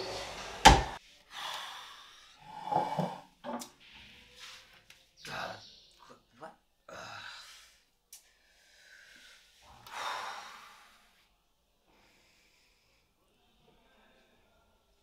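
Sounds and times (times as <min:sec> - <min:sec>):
man breathing heavily: 0:00.0 - 0:03.3, 0:06.9 - 0:11.2.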